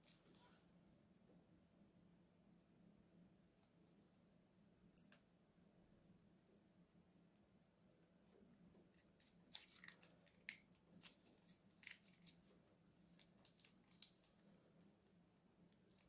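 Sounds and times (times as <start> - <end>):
plastic piping bag squelching: 8.7 - 14.9.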